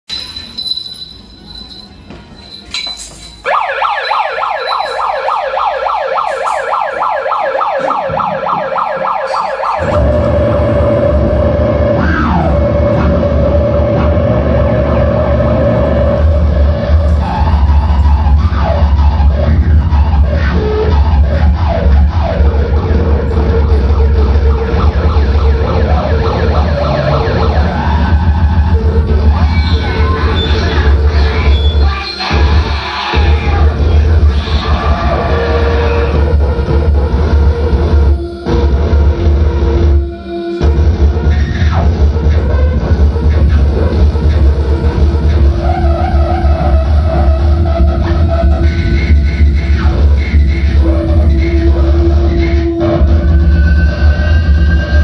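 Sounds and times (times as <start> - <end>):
siren-like falling electronic tone: 3.4 - 32.4
heavy low rumble with hum: 9.8 - 31.5.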